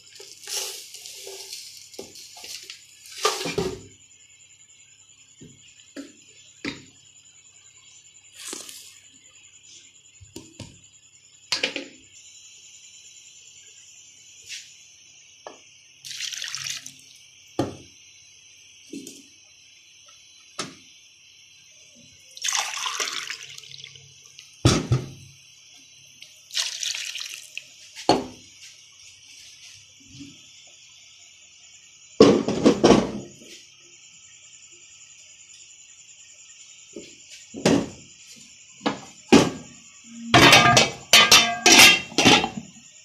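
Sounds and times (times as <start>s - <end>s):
water pouring into a pot: 16.0s - 17.0s, 22.4s - 24.0s, 26.5s - 27.7s
steel vessels knocking: 40.4s - 42.6s.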